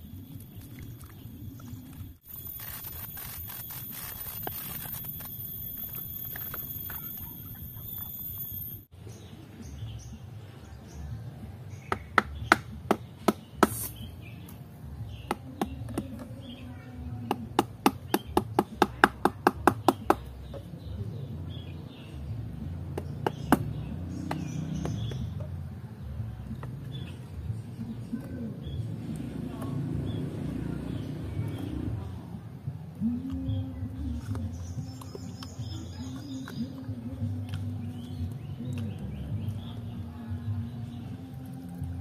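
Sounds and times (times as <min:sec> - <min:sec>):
blade scraping coconut husk: 0:02.2 - 0:07.0, 0:13.5 - 0:14.2
tool knocking on coconut: 0:11.9 - 0:13.9, 0:15.3 - 0:16.3, 0:17.2 - 0:20.7, 0:22.9 - 0:25.5.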